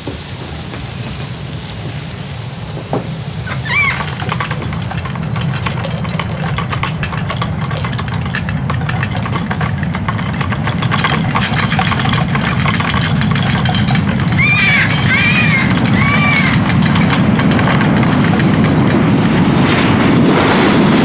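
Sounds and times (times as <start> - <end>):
teacup rattling on saucer: 2.8 - 19.4
macaw squawk: 3.5 - 4.1, 14.4 - 16.6.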